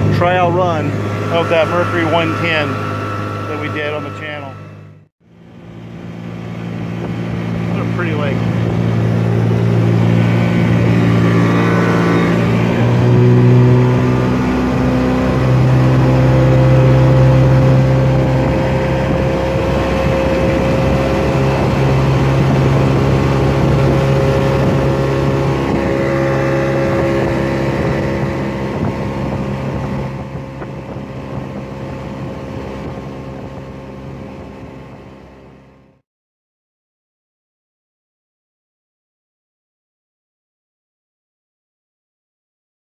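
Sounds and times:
outboard motor running: 0.0s - 36.0s
wind on microphone: 6.2s - 35.5s.

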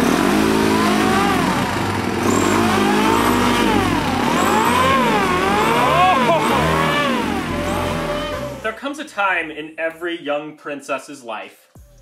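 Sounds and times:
engine revving: 0.0s - 8.8s.

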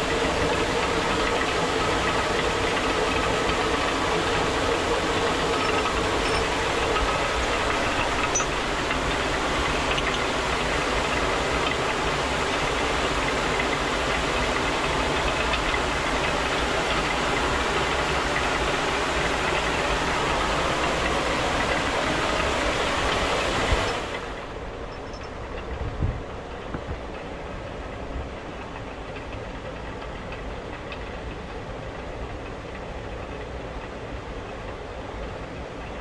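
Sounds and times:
water rushing: 0.0s - 24.8s.

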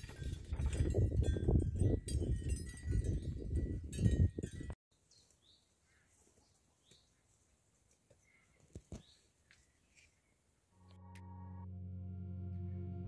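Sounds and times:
wooden loom clattering: 0.0s - 1.3s.

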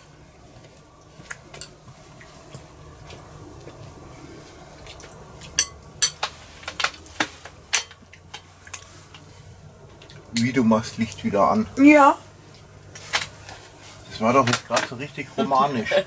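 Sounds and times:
spoons clinking on bowls: 5.5s - 6.3s.

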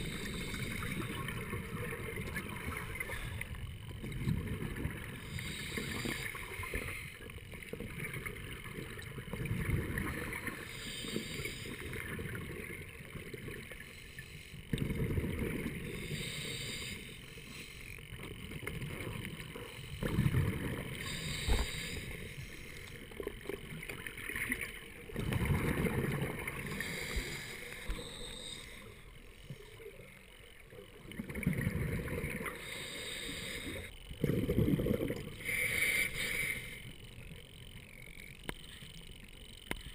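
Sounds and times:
regulator inhalation hiss: 0.0s - 1.4s, 5.2s - 7.2s, 10.6s - 12.0s, 13.7s - 14.7s, 15.8s - 18.0s, 21.0s - 23.1s, 26.6s - 29.7s, 32.4s - 34.0s, 35.4s - 37.0s
exhaled bubbles gurgling underwater: 0.0s - 39.8s.

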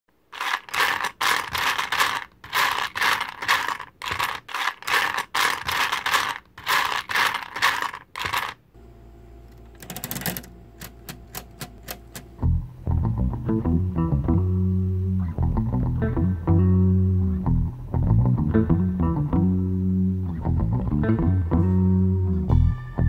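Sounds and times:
low steady hum: 7.7s - 23.0s.

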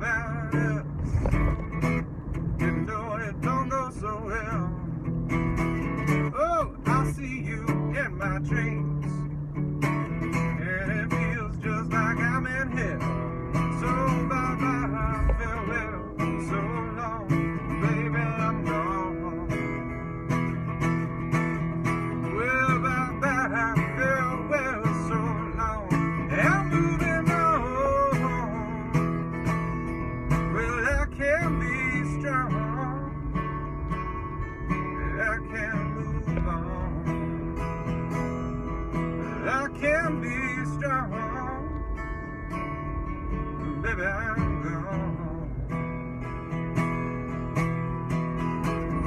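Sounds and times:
man singing: 0.0s - 1.3s, 2.6s - 4.8s, 6.0s - 9.3s, 10.3s - 20.4s, 21.8s - 29.7s, 30.3s - 33.7s, 34.7s - 37.6s, 39.0s - 42.0s, 43.5s - 45.7s
acoustic guitar: 0.0s - 49.0s.

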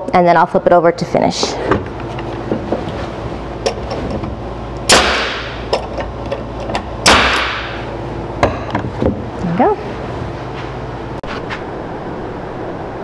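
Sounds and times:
staple gun firing: 7.0s - 7.7s.

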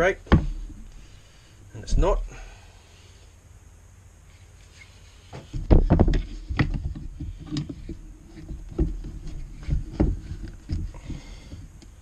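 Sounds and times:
knocks and scrapes on wood: 0.3s - 1.1s, 5.3s - 12.0s.

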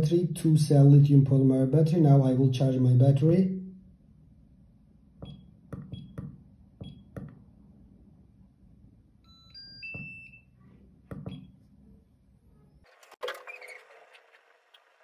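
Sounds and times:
beeps at stepping pitches: 5.2s - 7.3s, 9.3s - 11.6s.

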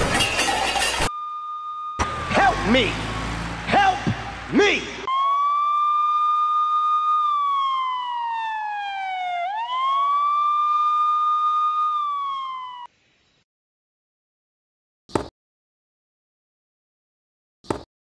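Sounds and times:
emergency vehicle siren wailing: 1.1s - 12.9s.

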